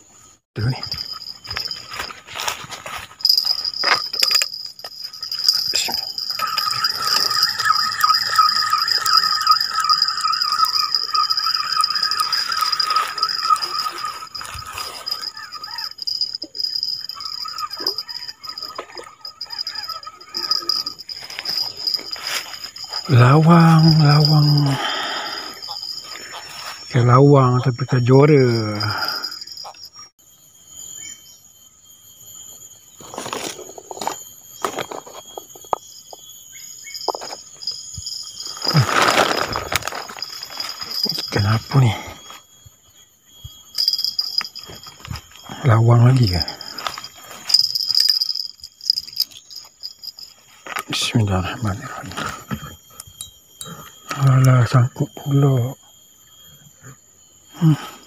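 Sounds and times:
high-pitched insect drone: 0.0 - 58.0
thin high steady tone: 0.0 - 58.0
clothing and plastic bags rustling: 1.5 - 4.8, 38.5 - 41.3
fishing reel being cranked: 3.2 - 23.1, 46.4 - 50.3.

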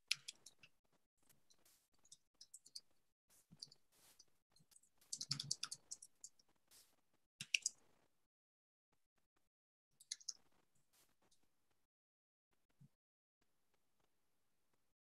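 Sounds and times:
typing on computer keyboard: 5.1 - 6.2.

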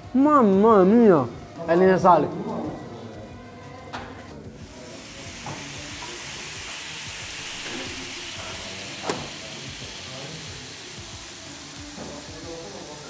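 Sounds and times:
meatballs sizzling on a grill: 4.6 - 13.0.

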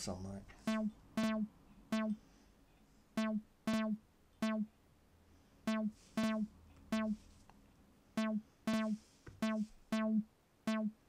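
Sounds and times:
looped synth sequence: 0.7 - 2.2, 3.2 - 4.7, 5.7 - 7.2, 8.2 - 11.0.

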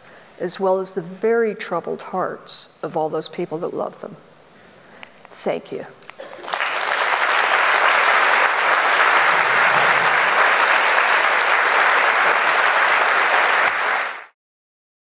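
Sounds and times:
audience applauding: 6.2 - 14.4.

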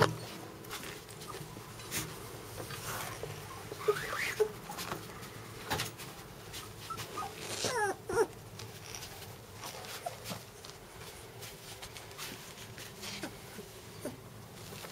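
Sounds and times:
puppies whimpering: 3.4 - 4.8, 6.6 - 9.0, 13.1 - 14.2.

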